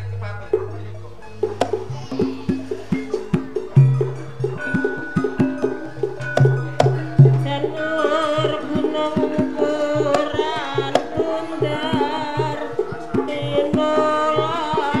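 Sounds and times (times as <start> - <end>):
hand drum strokes: 0.0 - 15.0
wavering high melody: 0.0 - 15.0.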